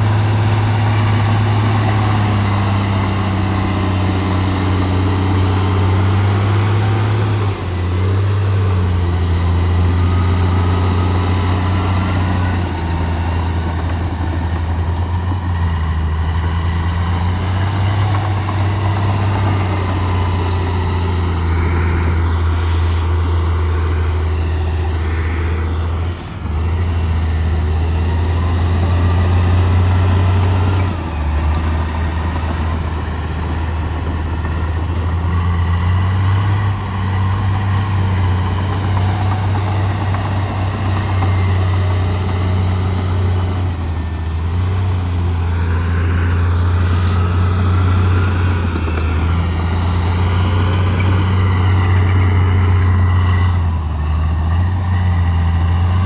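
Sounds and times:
diesel engine droning: 0.0s - 56.0s.

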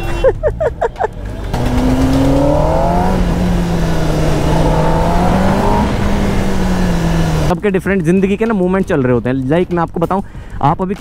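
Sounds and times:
motorcycle engine accelerating: 0.6s - 7.6s.

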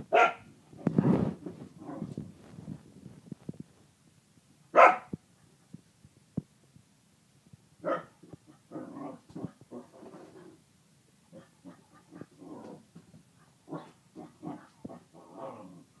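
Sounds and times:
dog barking: 0.1s - 0.5s, 4.7s - 5.1s, 7.8s - 8.2s
soft dog vocal sounds: 11.3s - 16.0s.

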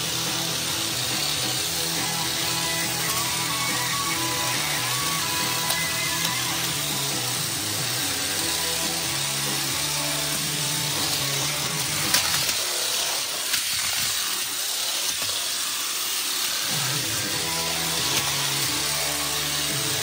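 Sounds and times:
background music: 0.0s - 12.4s, 16.8s - 20.0s
toy cars whirring: 0.0s - 20.0s.

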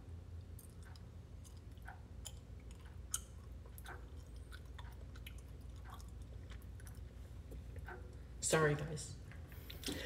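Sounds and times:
person chewing candy: 0.4s - 8.3s.

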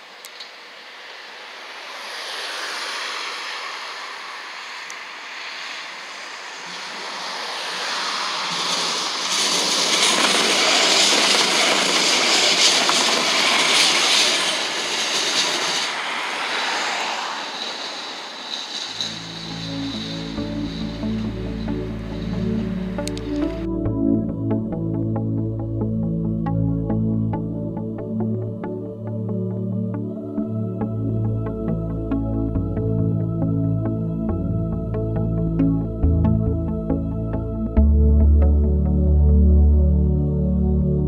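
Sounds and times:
tram passing on rails: 0.0s - 23.7s
music: 19.1s - 41.0s.

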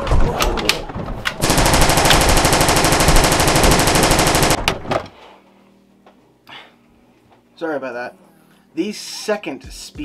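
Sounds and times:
automatic rifle fire: 1.4s - 4.9s.

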